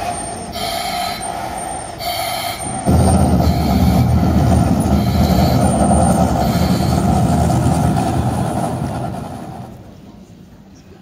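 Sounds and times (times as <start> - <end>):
rocket launch roar: 2.8 - 9.9.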